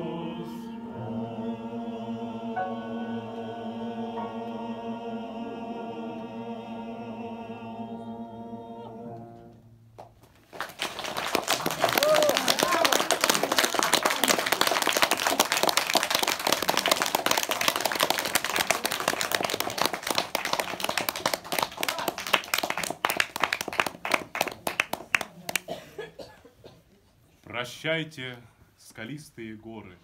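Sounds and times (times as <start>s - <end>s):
audience applauding: 10.4s - 25.7s.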